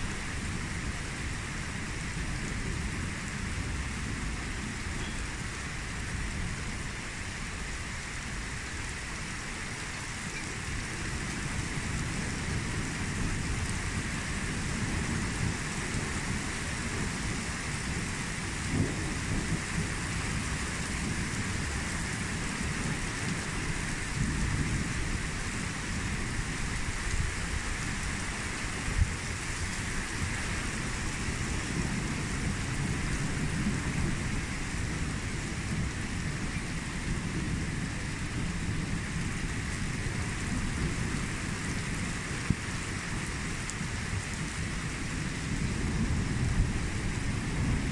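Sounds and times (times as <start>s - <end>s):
steady rain: 0.0s - 47.9s
thunder rumbling: 11.4s - 28.1s, 30.1s - 47.9s.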